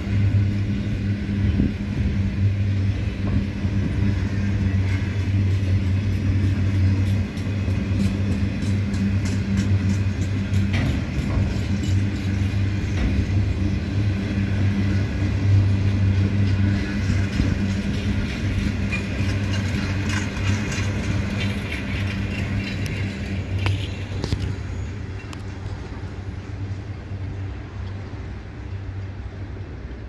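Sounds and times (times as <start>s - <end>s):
train wheels rumbling on rail: 0.0s - 30.0s.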